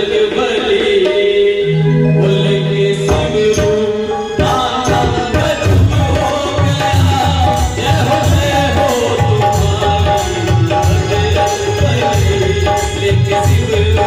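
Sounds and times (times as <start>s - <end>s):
long held melody notes: 1.7s - 3.1s
hand drums steady rhythm: 3.1s - 14.0s.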